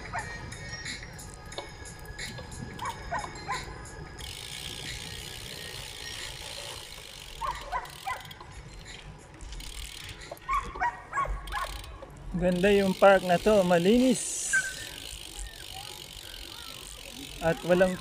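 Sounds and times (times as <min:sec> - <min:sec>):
wind: 0:00.0 - 0:18.0
bicycle freewheel ticking: 0:01.2 - 0:10.5, 0:11.3 - 0:18.0
distant calls: 0:12.9 - 0:18.0.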